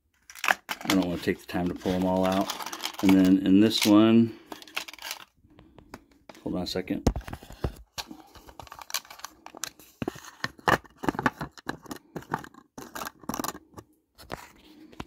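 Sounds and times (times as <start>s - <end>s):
small objects clicking and scraping: 0.1s - 5.3s, 8.0s - 10.1s, 11.0s - 13.8s.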